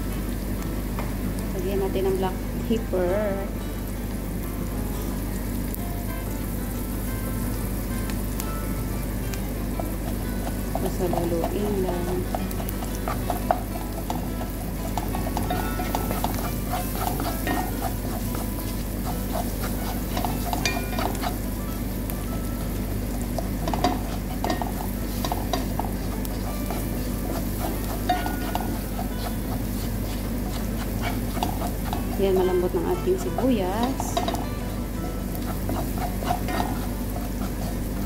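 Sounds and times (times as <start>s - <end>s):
onions sizzling: 0.0s - 38.0s
spatula scraping frying pan: 9.8s - 38.0s
spatula clicking against pan: 10.1s - 21.4s, 23.3s - 32.2s, 33.4s - 37.8s.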